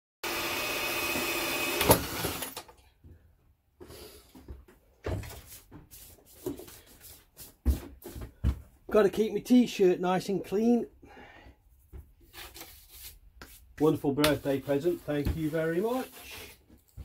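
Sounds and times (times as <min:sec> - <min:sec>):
power drill with hole saw: 0:00.2 - 0:02.7.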